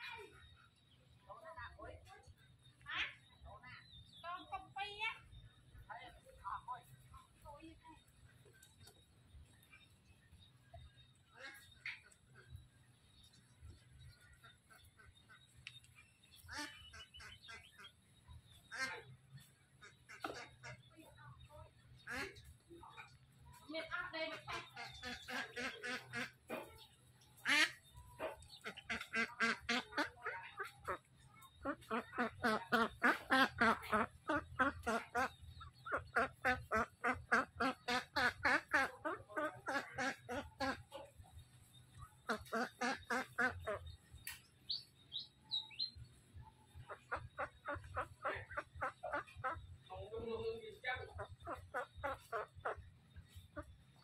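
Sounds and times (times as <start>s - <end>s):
duck quacking: 11.3s - 12.5s, 13.7s - 21.2s, 22.0s - 41.4s, 42.2s - 45.9s, 46.7s - 54.0s.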